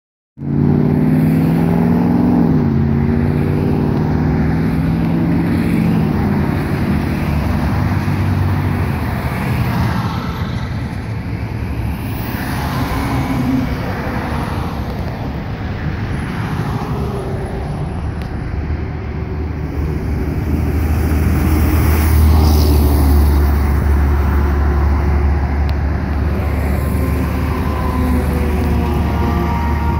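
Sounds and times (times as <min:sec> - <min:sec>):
truck engine revving through gears: 0:00.4 - 0:08.9, 0:19.6 - 0:29.9
highway traffic passing: 0:00.4 - 0:29.9.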